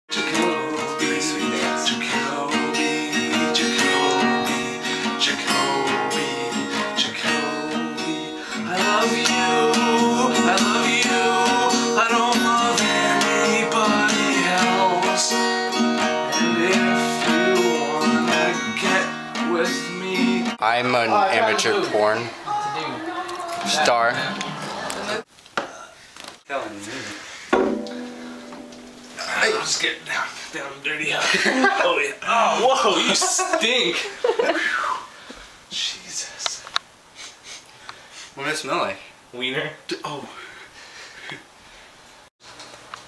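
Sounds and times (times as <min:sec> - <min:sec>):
strummed acoustic guitar music: 0:00.1 - 0:22.4, 0:27.6 - 0:30.0.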